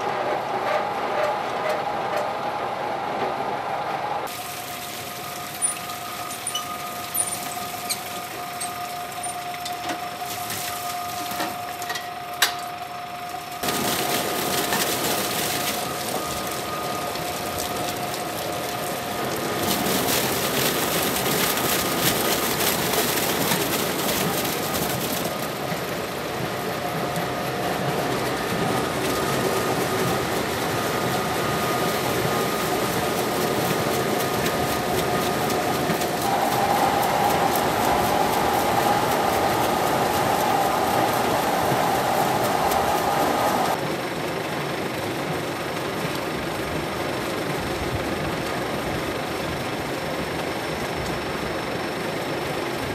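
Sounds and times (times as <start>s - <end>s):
tractor engine humming: 0.0s - 52.9s
grapes pouring into hopper: 13.6s - 26.7s, 28.0s - 43.9s.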